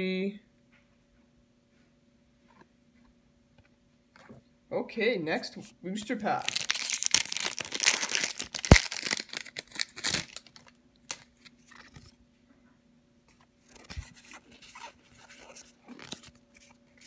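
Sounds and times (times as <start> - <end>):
wrapper crinkling and tearing: 6.3 - 12.0, 13.7 - 17.0.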